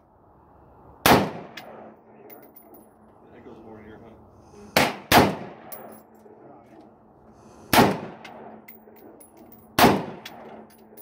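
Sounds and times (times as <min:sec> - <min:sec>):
rifle shots with echo: 0:01.0 - 0:02.4, 0:04.8 - 0:06.4, 0:07.7 - 0:09.2, 0:09.8 - 0:11.0.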